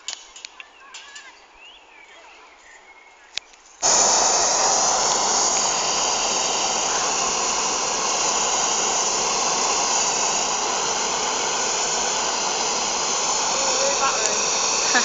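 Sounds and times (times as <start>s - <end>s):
propane burner blast: 3.8s - 15.0s.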